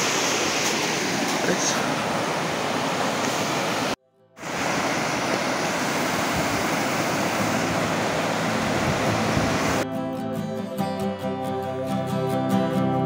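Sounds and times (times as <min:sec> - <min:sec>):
river rapids rushing: 0:00.0 - 0:09.8.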